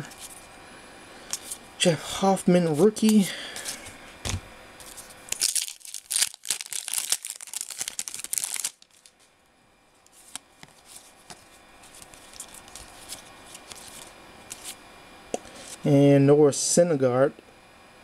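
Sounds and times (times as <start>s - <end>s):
card pack wrapper tearing: 4.8s - 9.1s, 11.9s - 14.8s.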